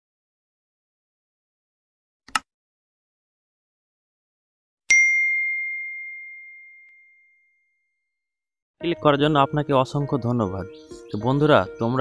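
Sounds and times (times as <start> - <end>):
bright bell ding: 4.9 - 7.8.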